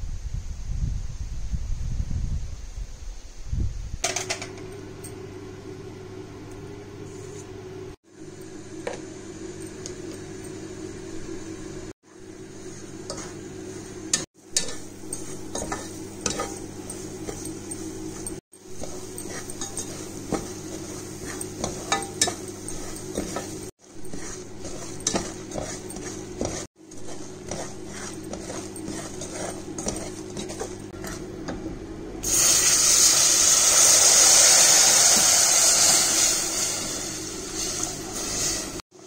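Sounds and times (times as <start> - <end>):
butter sizzling: 8.2 - 38.8
spatula scraping a pot: 12.5 - 31.4.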